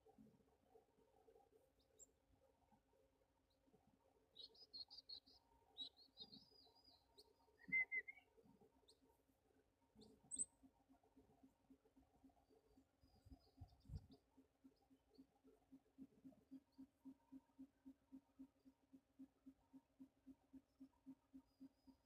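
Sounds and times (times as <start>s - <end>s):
small birds chirping: 4.3s - 9.0s, 10.0s - 10.6s.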